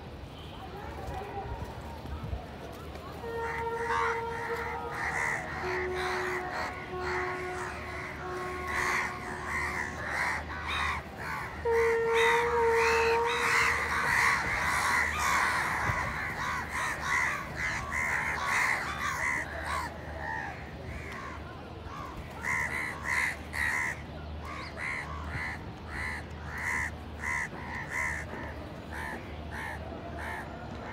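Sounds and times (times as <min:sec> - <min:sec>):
crows cawing: 0:03.4 - 0:30.9.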